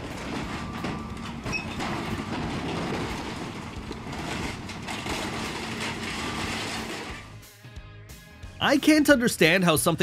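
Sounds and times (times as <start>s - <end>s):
excavator engine hum: 0.0s - 7.5s
metal clanking and crunching: 0.0s - 7.5s.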